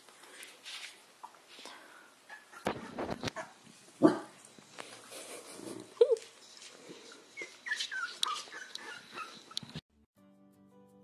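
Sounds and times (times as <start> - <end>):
dog barking: 2.4 - 4.4
dog whimpering: 7.0 - 9.7.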